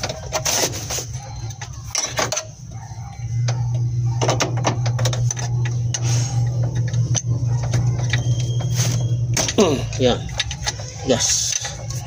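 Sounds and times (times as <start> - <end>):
steady low hum: 1.0 - 12.0
wrench clicking and scraping on metal: 9.4 - 12.0.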